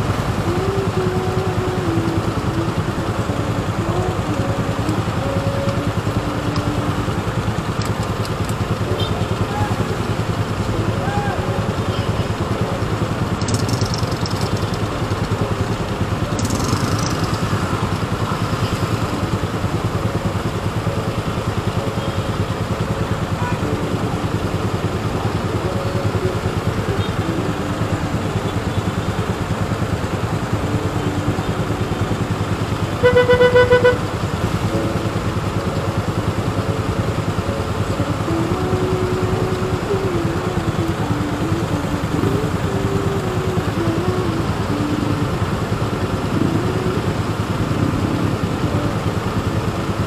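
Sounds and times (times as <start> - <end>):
motorcycle engine idling: 0.0 - 50.0
vehicle horn honking: 8.8 - 9.9, 32.9 - 34.2.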